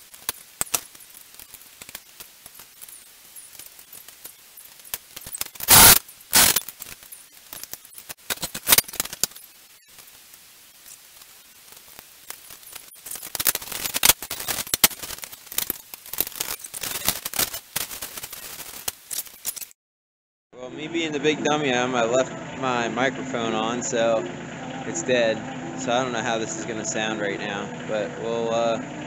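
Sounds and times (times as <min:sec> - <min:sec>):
scattered clicks: 0:00.0 - 0:10.1, 0:10.8 - 0:19.8
packaging crinkling and rustling: 0:00.0 - 0:19.7.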